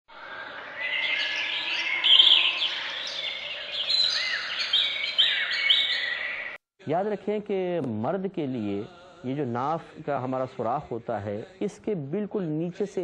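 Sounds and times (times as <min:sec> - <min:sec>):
birds chirping and singing: 0:00.1 - 0:06.6.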